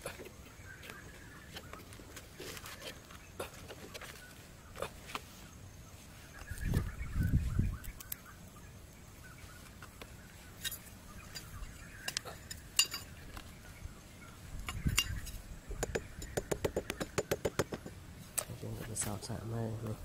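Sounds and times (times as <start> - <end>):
light clicks and clinks: 10.6 - 13.5, 14.6 - 15.4.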